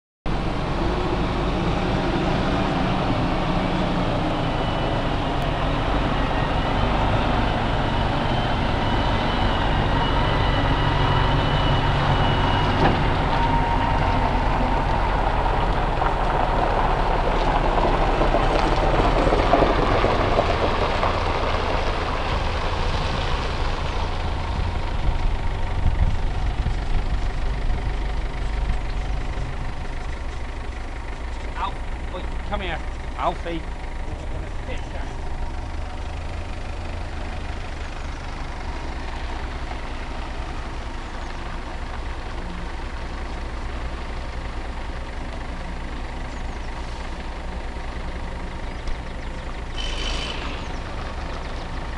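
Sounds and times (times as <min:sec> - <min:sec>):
lorry diesel engine running: 0:00.3 - 0:51.9.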